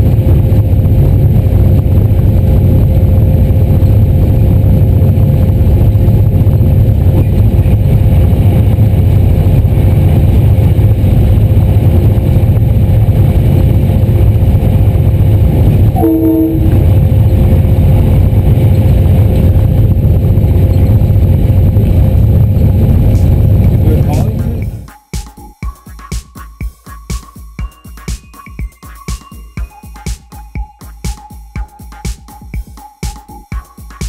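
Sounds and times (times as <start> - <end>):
train rumbling with whine: 0.0 - 24.9
train horn blast: 15.9 - 17.0.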